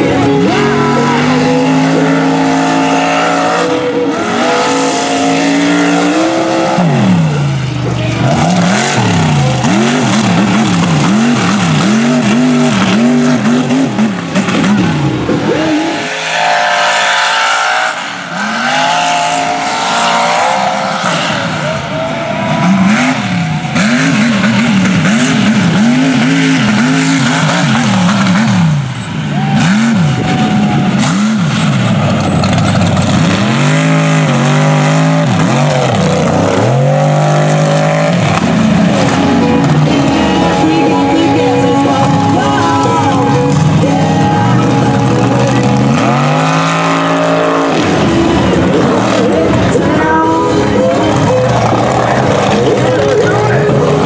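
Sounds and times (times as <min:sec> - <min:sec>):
truck engines revving: 0:00.0 - 0:54.0.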